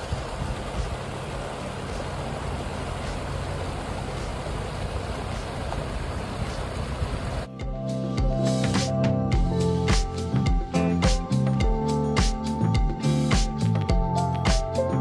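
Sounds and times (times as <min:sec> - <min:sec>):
creek rushing over rocks: 0:00.0 - 0:07.5.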